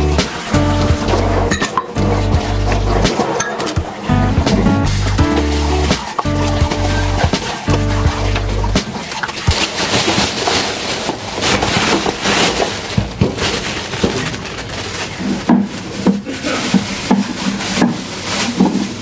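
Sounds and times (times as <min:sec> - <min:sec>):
tap water running into sink: 0:00.0 - 0:12.0
dishes clinking: 0:01.5 - 0:02.0, 0:03.0 - 0:04.0
plastic bag crinkling: 0:05.0 - 0:19.0.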